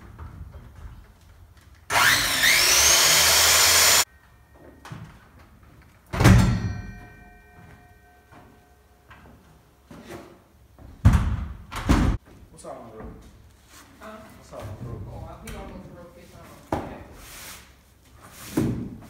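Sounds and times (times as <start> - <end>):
power tool motor whine: 1.9 - 4.0
loud metallic clank: 6.1 - 7.6.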